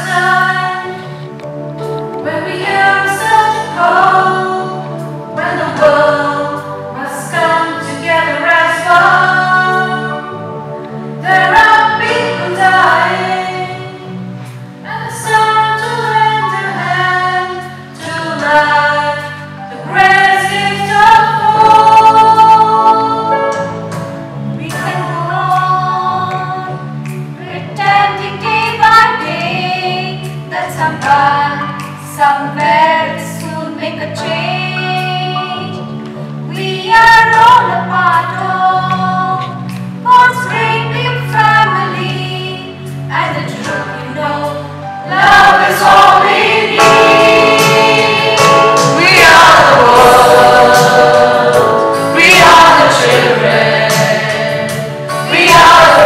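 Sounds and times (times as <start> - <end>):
choir singing: 2.2 - 14.1, 14.9 - 23.5, 43.3 - 56.0.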